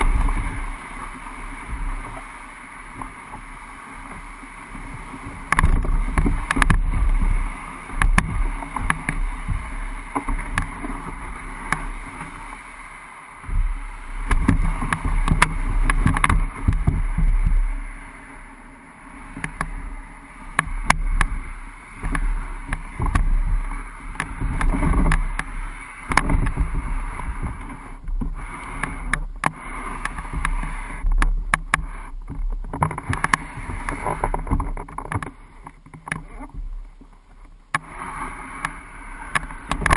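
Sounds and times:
canoe hull scraping over ground: 0:00.0 - 0:39.9
twigs knocking against hull: 0:05.5 - 0:07.3, 0:13.5 - 0:17.6, 0:20.6 - 0:37.9.

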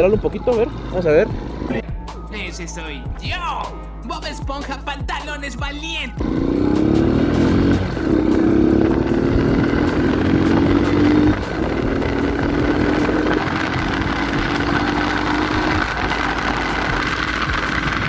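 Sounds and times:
motorcycle engine accelerating: 0:06.2 - 0:18.0
wind noise on microphone: 0:10.3 - 0:18.0.

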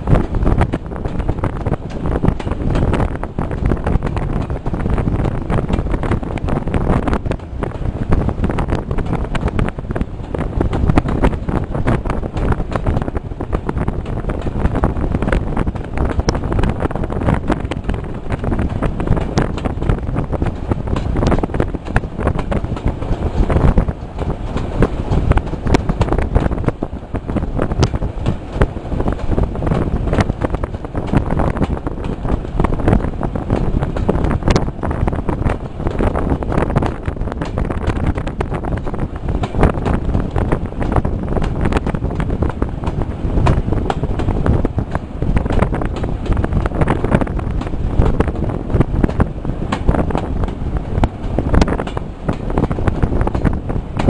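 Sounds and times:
train running noise: 0:00.0 - 0:54.0
wind buffeting microphone: 0:00.0 - 0:54.0.

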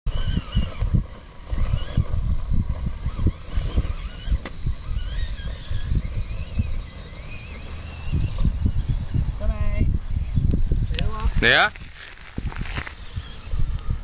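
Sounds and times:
electric motor and gears whining: 0:00.1 - 0:14.0
wind rumble on microphone: 0:00.1 - 0:14.0.

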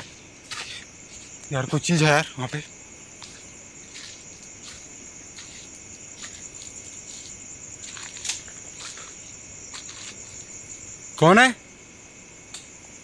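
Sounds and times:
soft scuffing: 0:00.0 - 0:01.5, 0:03.1 - 0:10.6
crickets chirring: 0:00.0 - 0:13.0.

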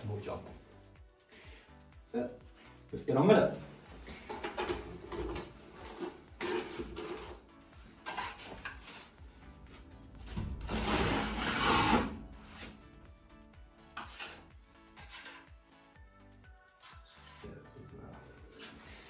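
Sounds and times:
background music: 0:00.0 - 0:19.0
trowel scraping plaster: 0:04.7 - 0:07.4, 0:10.6 - 0:12.8, 0:13.9 - 0:15.5.

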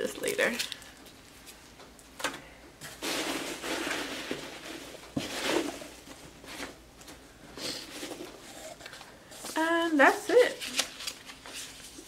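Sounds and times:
rustling of foam packing peanuts: 0:02.9 - 0:06.7.

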